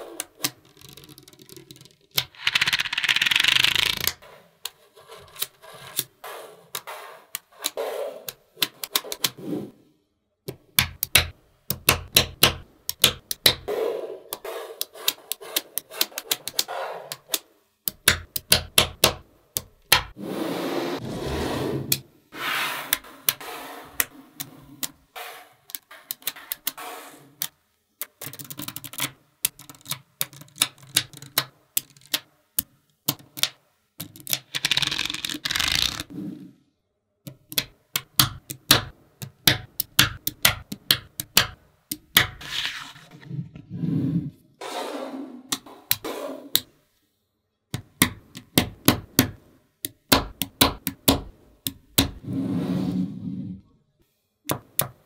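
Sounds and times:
magnetic balls clicking together: 0.2 - 4.2, 6.7 - 9.4, 10.5 - 13.7, 14.3 - 20.2, 25.7 - 26.8, 27.4 - 36.1, 37.3 - 42.4, 47.7 - 52.2
magnetic balls rattling: 0.5 - 4.2.

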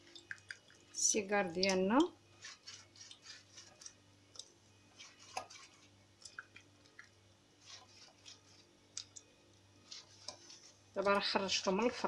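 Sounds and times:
pastry brush dabbing and stroking: 2.4 - 4.0, 4.9 - 6.4, 7.6 - 8.7, 9.8 - 12.0.

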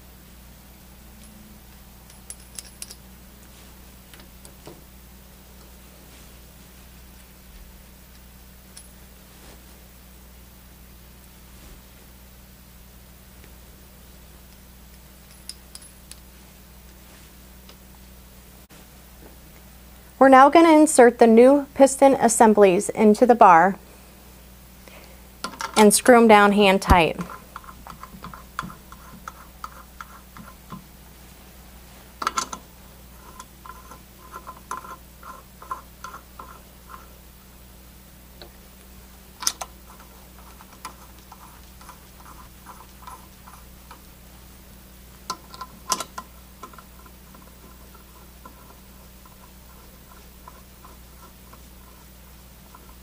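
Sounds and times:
light ticking of screwing parts: 27.3 - 30.9, 32.2 - 37.1, 39.4 - 44.1, 45.2 - 53.0.

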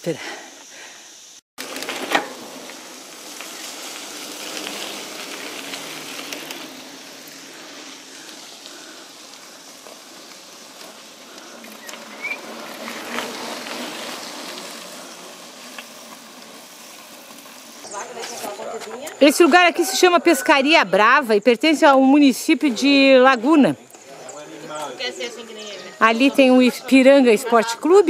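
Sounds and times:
bike knocking and rattling: 1.6 - 19.4
bike tyres rolling on dirt: 1.6 - 28.0.

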